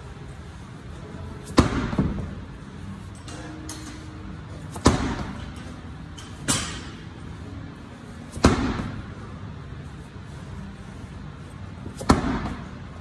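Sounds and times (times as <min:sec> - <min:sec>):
slam ball thudding on rubber floor: 0:08.4 - 0:09.0, 0:12.0 - 0:12.6.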